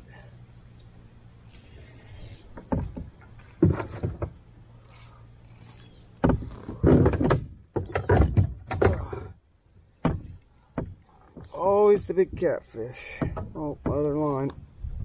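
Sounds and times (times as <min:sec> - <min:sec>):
kayak handling knocks and thumps: 0:02.4 - 0:04.5, 0:06.2 - 0:14.5.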